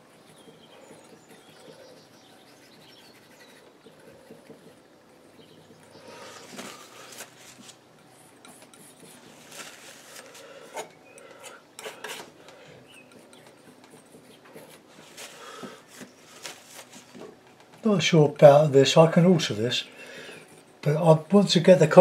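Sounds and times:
palette knife scraping paint: 0.0 - 17.0.

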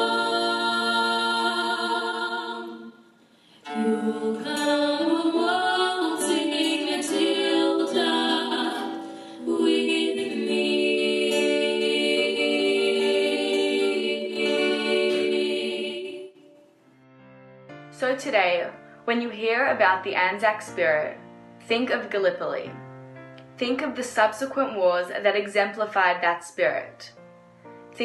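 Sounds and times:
choir singing in harmony: 0.0 - 16.7.

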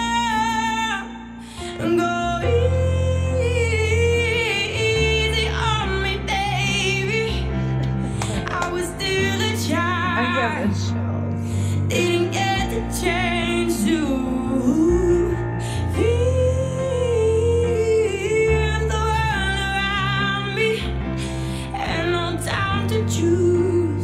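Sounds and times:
piano accompaniment: 0.0 - 24.0
woman singing a slow ballad: 0.0 - 24.0.

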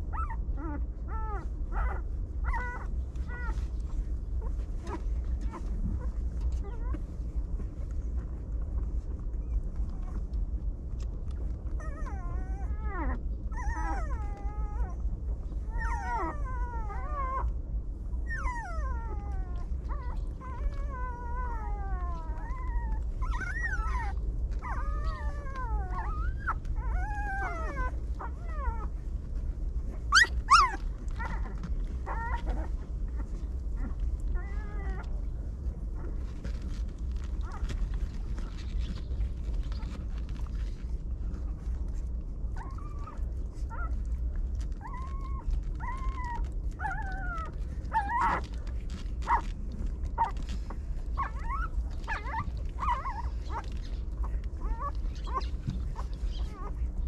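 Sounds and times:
puppies whining and crying: 0.0 - 57.0
steady low rumble: 0.0 - 57.0
puppy squeal: 30.1 - 32.7, 54.6 - 56.8.

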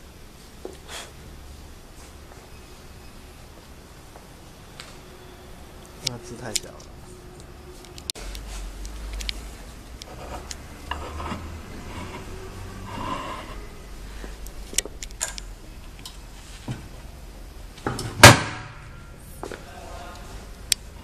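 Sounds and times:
metal rubbing: 10.0 - 13.9.

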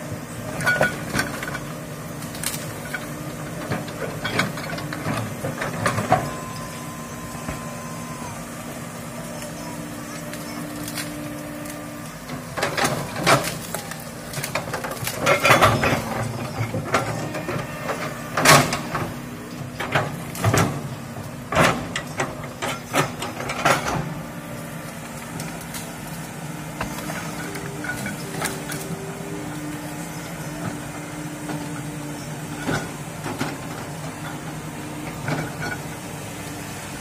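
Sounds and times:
excavator diesel engine running: 0.0 - 37.0
breaking wood cracks and snaps: 2.2 - 2.7, 10.3 - 11.8, 12.7 - 16.0.

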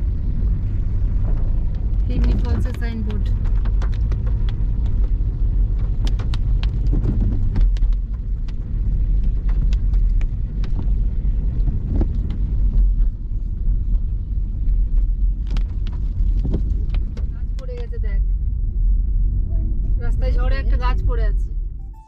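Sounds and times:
car engine and road rumble: 0.0 - 22.0
knocks and rattles in car: 0.6 - 18.2.

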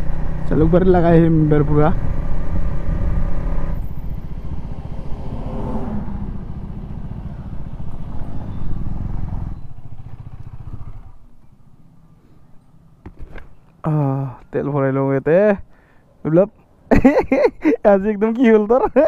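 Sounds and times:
motorcycle engine running: 0.0 - 11.4.

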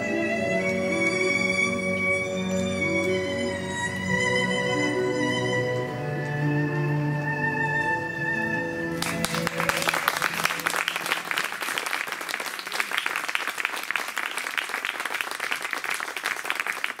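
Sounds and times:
low music notes: 0.0 - 11.3
audience applauding: 8.9 - 17.0.

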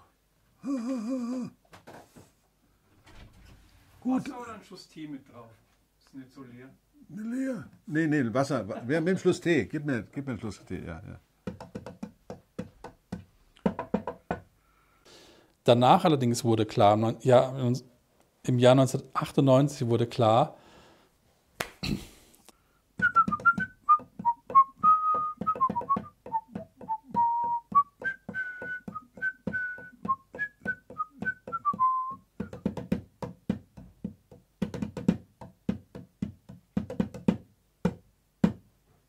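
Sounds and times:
fingers drumming on wooden desk: 11.4 - 14.5, 23.0 - 38.7
man whistling a tune: 23.0 - 32.6.

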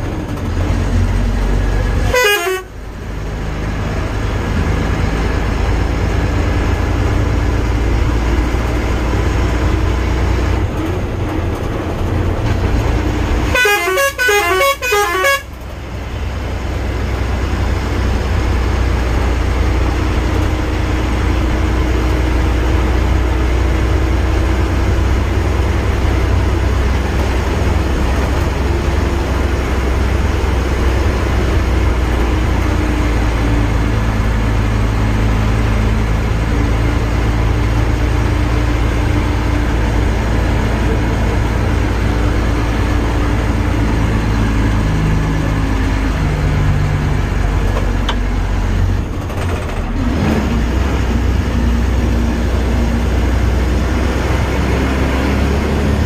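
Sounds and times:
vehicle engine and road noise: 0.0 - 56.0
musical car horn: 2.0 - 2.8, 13.4 - 15.6.

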